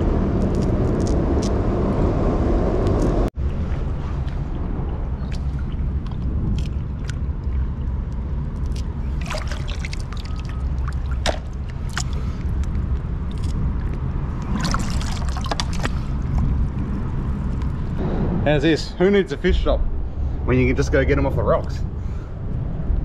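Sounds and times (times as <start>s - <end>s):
low rumble: 0.0s - 23.0s
seawater sloshing and trickling: 3.4s - 18.0s.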